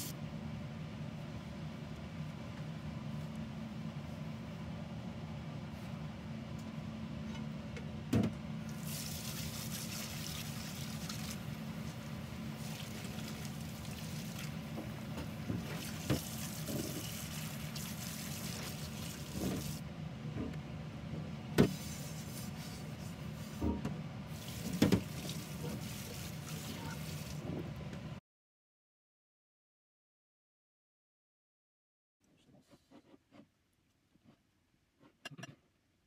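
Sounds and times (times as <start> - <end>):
steady low hum: 0.0 - 28.2
tap running into sink: 24.7 - 25.4.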